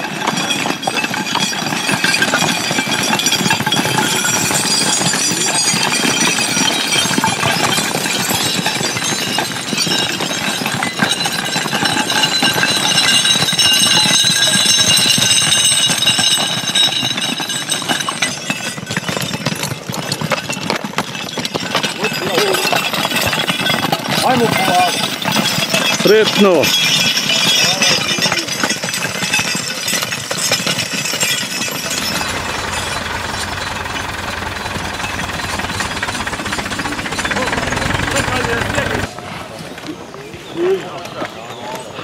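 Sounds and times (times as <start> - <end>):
chainsaw running at high speed: 31.8 - 39.1.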